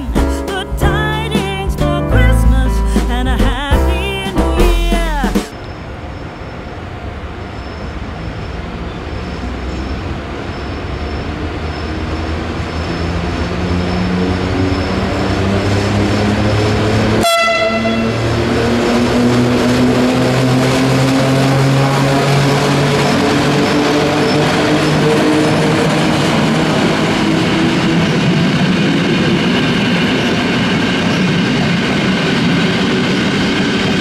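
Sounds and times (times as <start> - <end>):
electric locomotive motors whining: 5.5 - 34.0
short train horn toot: 17.2 - 18.3.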